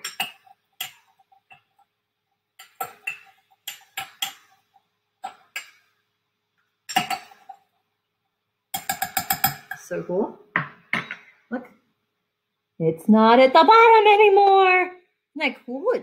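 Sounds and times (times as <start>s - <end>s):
metal spoon clinking against glass: 0.0s - 1.6s, 2.6s - 4.5s, 8.8s - 9.8s.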